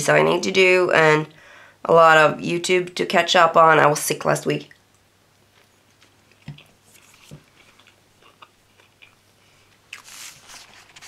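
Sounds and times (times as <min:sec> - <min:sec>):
papery rustle: 0:10.0 - 0:11.0
sticker sheet crinkling: 0:10.0 - 0:11.0.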